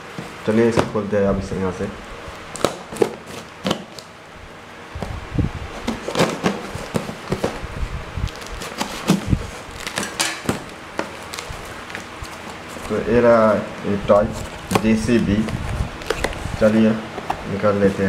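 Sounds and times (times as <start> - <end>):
knife slitting packing tape: 2.5 - 4.1, 8.3 - 12.9
cardboard box handled: 5.7 - 7.7, 8.3 - 13.0, 14.3 - 18.0.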